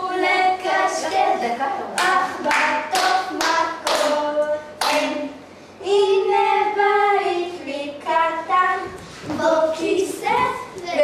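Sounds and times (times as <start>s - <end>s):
girls singing together: 0.0s - 11.0s
hand claps: 2.0s - 4.2s, 4.8s - 5.1s.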